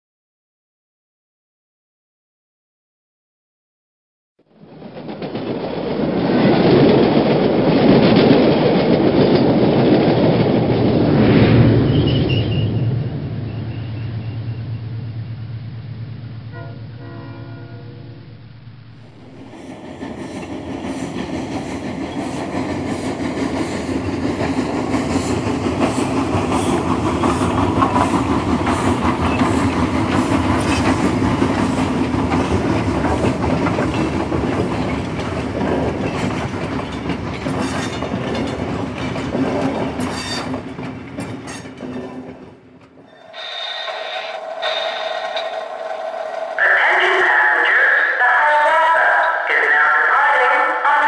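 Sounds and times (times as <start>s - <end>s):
model train wheels rumbling: 18.9s - 48.0s.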